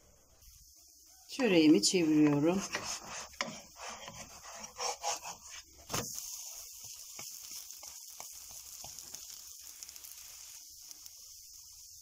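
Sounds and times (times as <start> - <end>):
pan sizzling: 0.0 - 12.0
spatula scraping frying pan: 1.9 - 10.5
flatbread flipped thud: 5.8 - 6.2.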